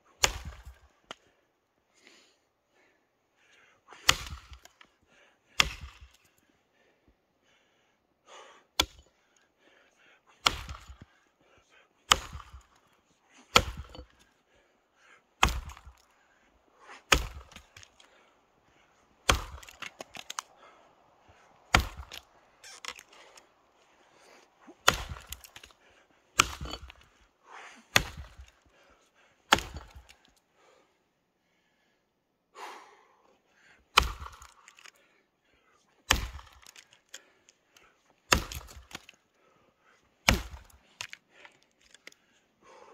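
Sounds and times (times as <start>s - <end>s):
axe chopping log: 0.2s - 1.2s, 4.0s - 4.8s, 5.5s - 6.2s, 8.8s - 9.0s, 10.4s - 11.1s, 12.0s - 12.8s, 13.5s - 14.2s, 15.4s - 16.1s, 17.0s - 18.2s, 19.2s - 20.5s, 21.7s - 23.4s, 24.8s - 25.8s, 26.4s - 27.1s, 27.9s - 28.6s, 29.5s - 30.2s, 33.9s - 34.9s, 36.0s - 37.0s, 38.3s - 39.2s, 40.2s - 41.2s
wood crackling: 15.4s - 27.2s.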